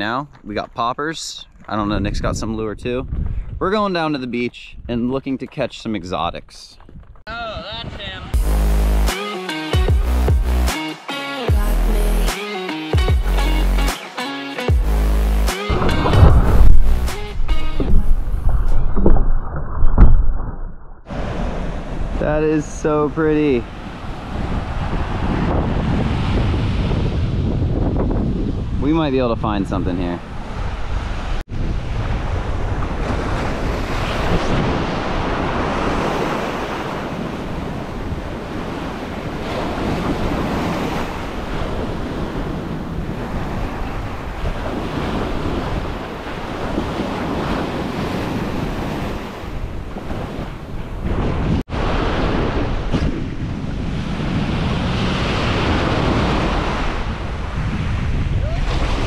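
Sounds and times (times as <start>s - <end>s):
wind buffeting microphone: 1.5s - 3.9s, 15.7s - 59.0s
small waves breaking on beach: 32.0s - 53.0s.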